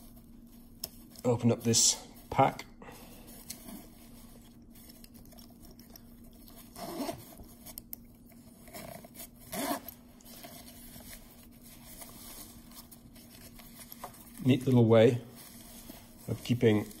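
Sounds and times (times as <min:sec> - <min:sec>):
fabric pouch handled: 0:03.3 - 0:17.0
zipper pulls: 0:06.6 - 0:07.4, 0:08.6 - 0:10.0.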